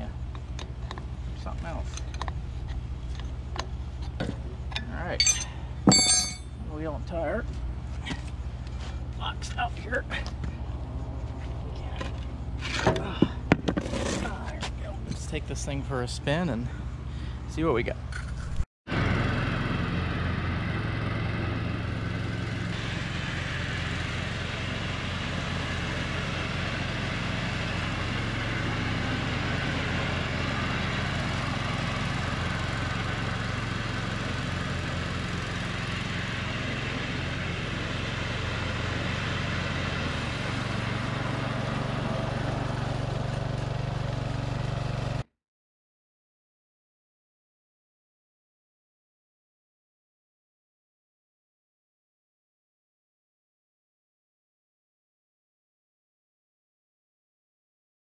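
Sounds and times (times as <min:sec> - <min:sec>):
riding lawn mower engine running: 0:00.0 - 0:18.2, 0:18.9 - 0:45.3.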